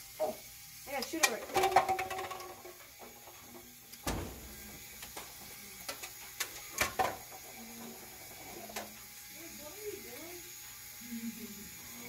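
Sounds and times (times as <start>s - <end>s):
motor turning gears: 2.8s - 12.0s.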